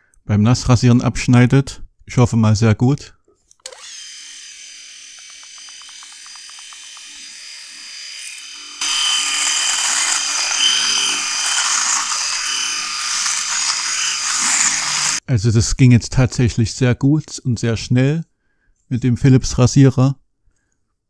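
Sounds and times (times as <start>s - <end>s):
electric shaver buzzing: 3.7s - 15.2s.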